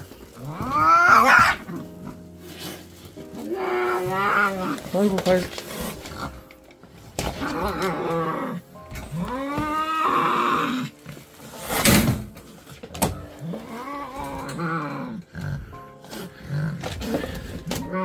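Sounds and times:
cat yowling: 0:00.5 - 0:01.8, 0:09.2 - 0:10.9.

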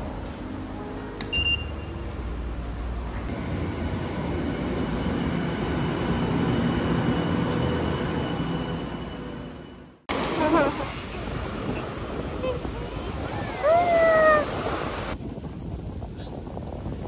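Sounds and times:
ticket gate beep: 0:01.3 - 0:02.0
train rumble: 0:02.0 - 0:17.0.

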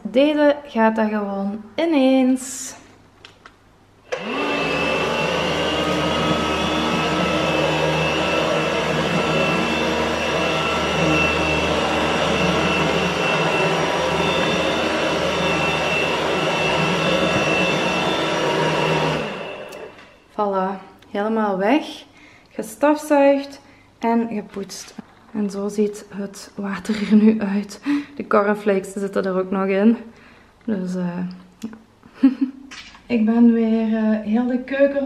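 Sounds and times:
vacuum mop whining: 0:04.1 - 0:20.3.

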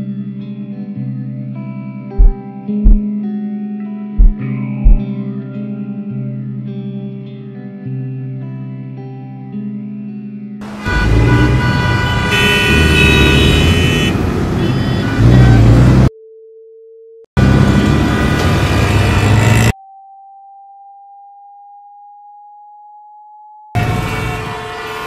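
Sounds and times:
car horns honking: 0:10.6 - 0:16.0, 0:23.8 - 0:25.0
road traffic: 0:10.6 - 0:16.1, 0:17.4 - 0:19.7, 0:23.8 - 0:25.0.

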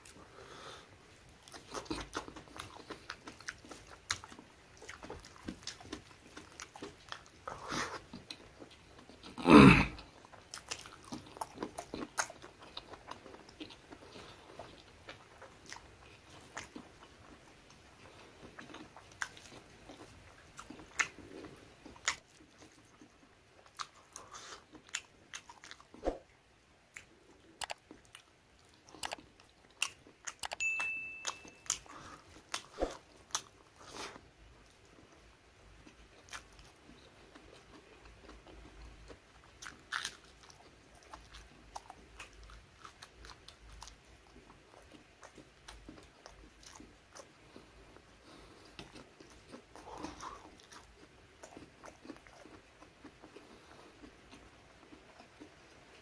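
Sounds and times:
food crunches and clicks: 0:01.3 - 0:09.4, 0:10.0 - 0:26.0, 0:26.9 - 0:30.6, 0:35.8 - 0:47.6, 0:48.2 - 0:56.0
person chewing and lip-smacking: 0:01.3 - 0:09.4, 0:10.0 - 0:26.3, 0:26.9 - 0:56.0.

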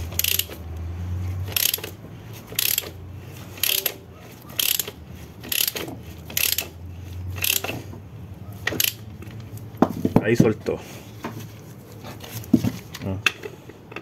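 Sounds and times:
ratchet wrench clicking: 0:00.0 - 0:00.6, 0:01.4 - 0:04.0, 0:04.6 - 0:06.8, 0:07.4 - 0:07.8, 0:08.6 - 0:09.4.

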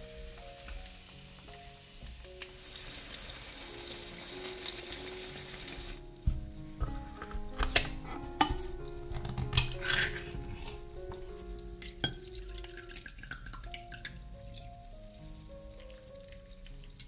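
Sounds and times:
soft background music: 0:00.0 - 0:17.0
liquid trickling into glass bowl: 0:11.9 - 0:14.2.

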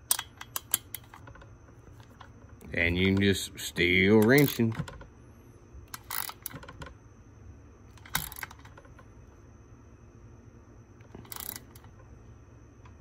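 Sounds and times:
wrench clicking and scraping on nut: 0:00.0 - 0:01.4, 0:04.1 - 0:04.8, 0:05.9 - 0:06.7, 0:11.2 - 0:11.9.

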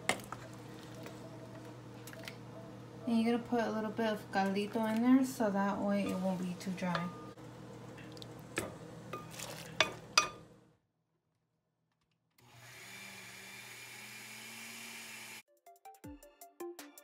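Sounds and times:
blender running: 0:12.4 - 0:15.4.

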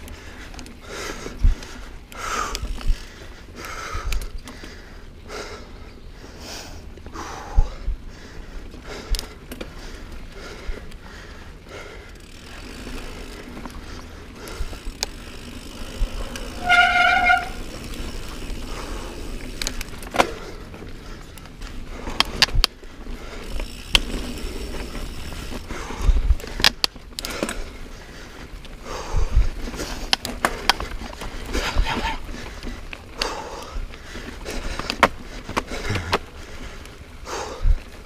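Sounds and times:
bike tyre and wind rush: 0:00.0 - 0:38.0
bike knocks and rattles: 0:14.4 - 0:20.8.

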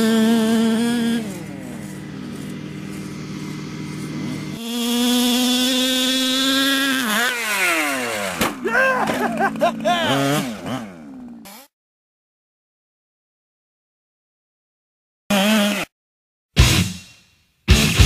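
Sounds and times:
small two-stroke engine revving: 0:00.0 - 0:11.7, 0:15.3 - 0:15.9.

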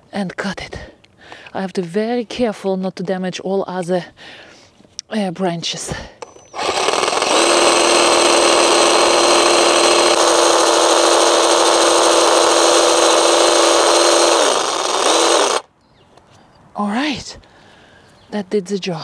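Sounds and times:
reciprocating saw cutting wood: 0:06.2 - 0:15.6.

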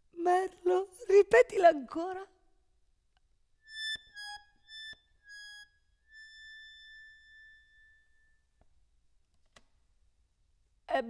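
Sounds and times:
faint high instrumental melody: 0:03.7 - 0:08.3.

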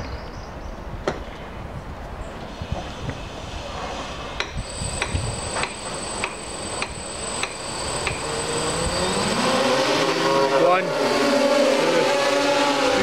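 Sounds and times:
high whine: 0:04.5 - 0:11.2
regular ticking: 0:04.6 - 0:09.8
drone motors spinning up: 0:04.6 - 0:13.0.

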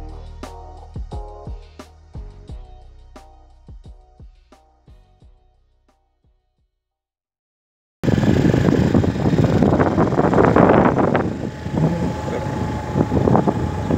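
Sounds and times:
wind buffeting microphone: 0:08.0 - 0:13.9.

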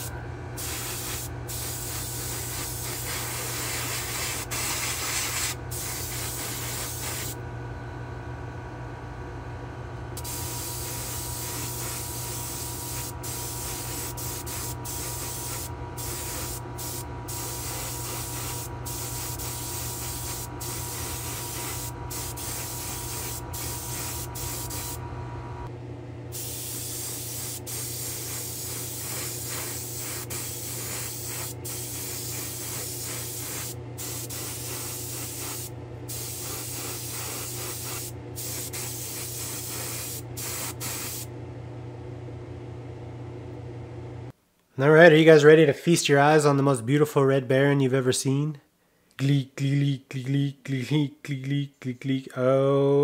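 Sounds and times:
spray gun hissing: 0:00.0 - 0:07.4, 0:10.2 - 0:25.0, 0:26.3 - 0:41.3
steady low hum: 0:00.0 - 0:44.4.

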